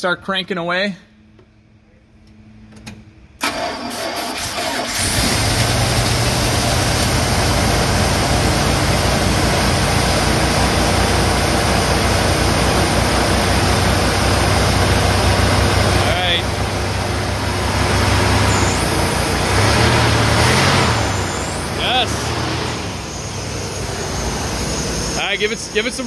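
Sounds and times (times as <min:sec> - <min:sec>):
starter motor cranking: 0:03.4 - 0:06.9
car engine running: 0:04.7 - 0:26.0.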